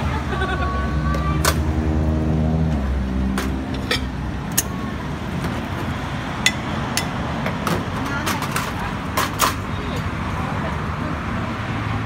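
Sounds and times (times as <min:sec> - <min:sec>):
street traffic noise: 0:00.0 - 0:12.0
vehicle engine humming: 0:00.0 - 0:12.0
metal utensils clinking on pot: 0:03.8 - 0:04.7.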